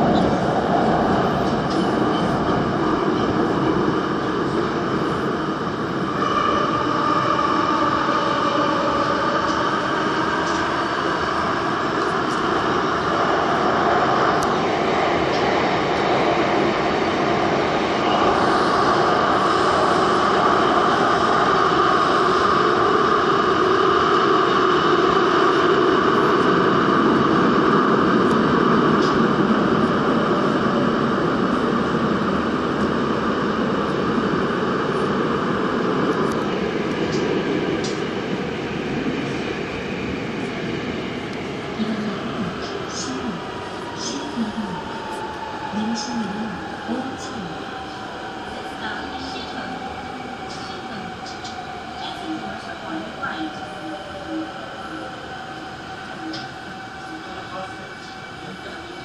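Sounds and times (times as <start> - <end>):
train wheels rumbling on rails: 0.0 - 59.0
train whining tone: 41.8 - 59.0.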